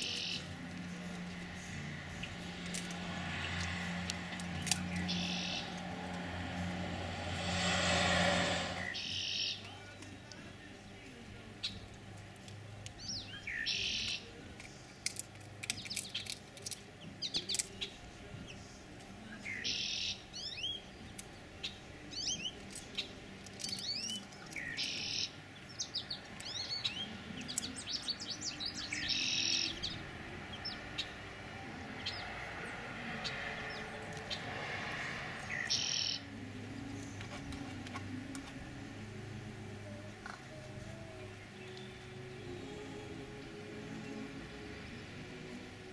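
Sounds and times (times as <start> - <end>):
songbirds chirping: 0.0 - 45.9
loud rush of noise: 1.8 - 9.2, 32.2 - 35.9.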